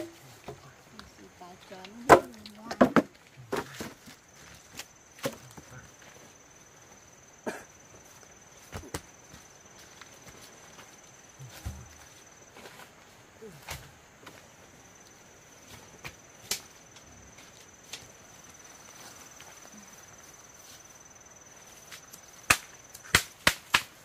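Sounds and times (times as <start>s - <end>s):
sharp wooden knocks: 2.0s - 3.7s.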